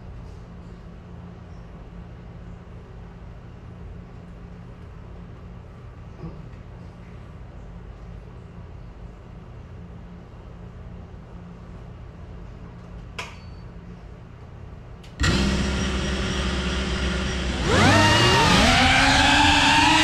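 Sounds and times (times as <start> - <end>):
drone motors whining: 15.2 - 20.0.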